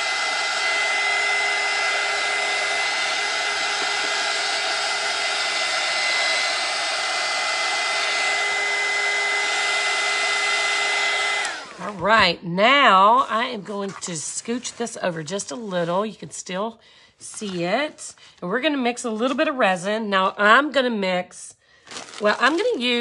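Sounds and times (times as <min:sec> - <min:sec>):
blow dryer running: 0:00.0 - 0:14.0.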